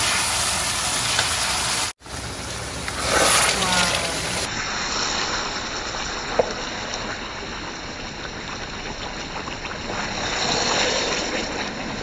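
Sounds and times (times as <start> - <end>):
stew hissing in a pan: 9.8 - 12.0.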